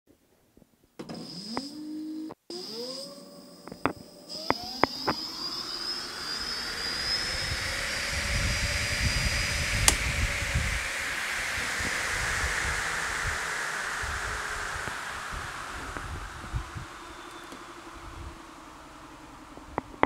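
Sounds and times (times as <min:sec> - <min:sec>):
electric motor whine: 0:01.1 - 0:20.0
air rushing from spinning wheel: 0:04.1 - 0:20.0
sharp click: 0:09.8 - 0:10.0
ticks: 0:09.8 - 0:10.0.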